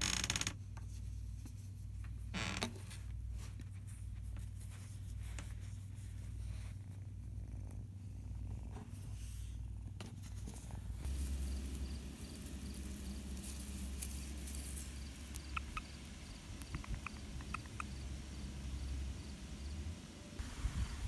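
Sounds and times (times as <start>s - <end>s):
cat purring: 4.9s - 20.4s.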